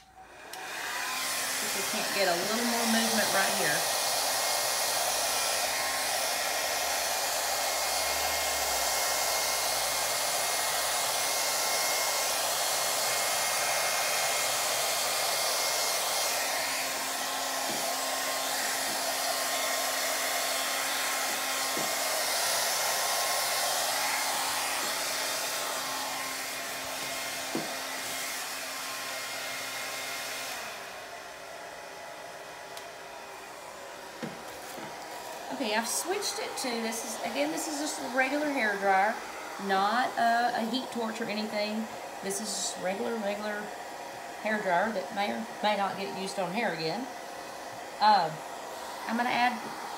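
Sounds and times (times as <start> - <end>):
hair dryer blowing: 0.0 - 49.9.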